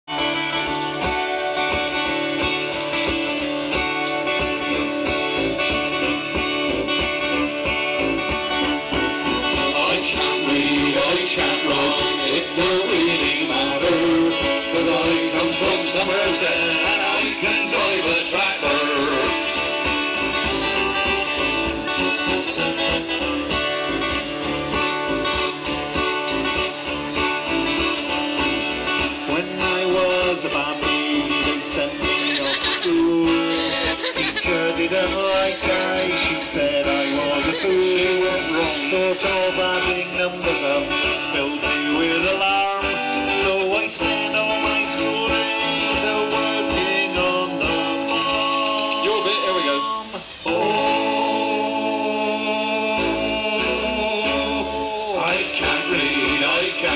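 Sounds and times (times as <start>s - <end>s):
band playing instrumental: 0.0s - 56.9s
strummed guitars: 0.0s - 56.9s
steady drum beat: 1.0s - 40.4s.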